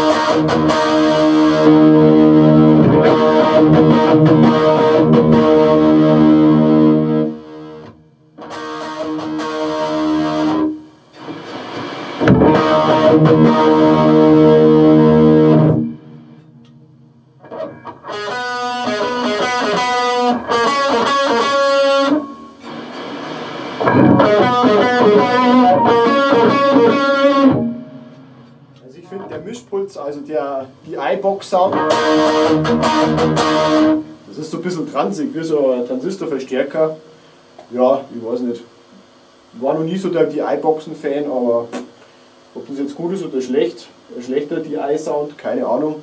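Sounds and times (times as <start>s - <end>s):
distorted electric guitar: 0.0s - 46.0s.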